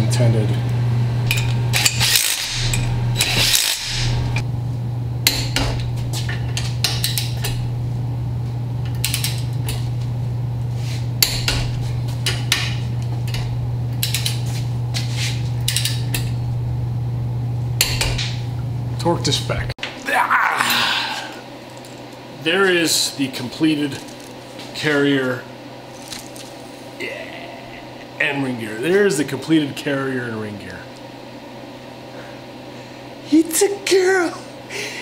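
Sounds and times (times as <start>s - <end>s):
steady low hum: 0.0s - 35.0s
torque wrench ratcheting and clicking: 1.3s - 4.1s.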